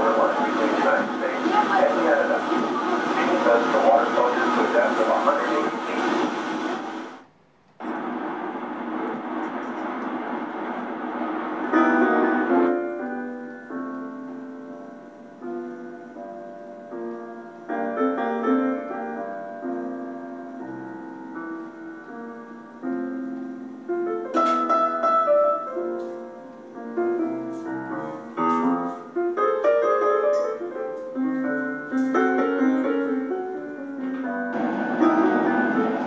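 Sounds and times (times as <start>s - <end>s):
slow gentle piano music: 11.5s - 36.0s.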